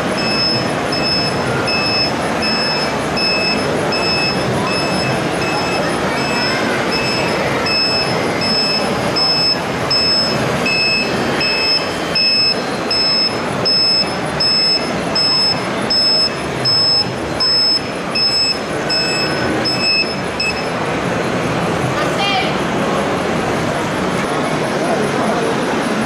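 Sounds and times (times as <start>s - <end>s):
high-pitched reversing beeps: 0.0s - 20.8s
crowd noise: 0.0s - 26.0s.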